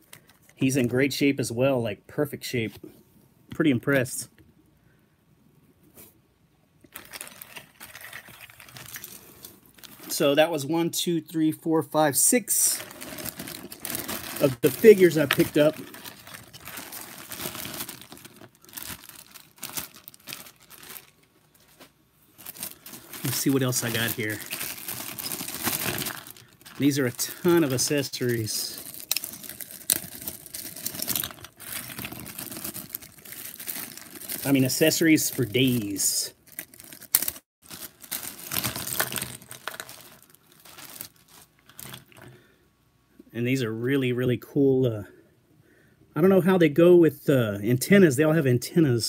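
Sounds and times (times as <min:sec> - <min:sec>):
plastic bag crinkling: 0:06.9 - 0:10.3, 0:12.5 - 0:42.4.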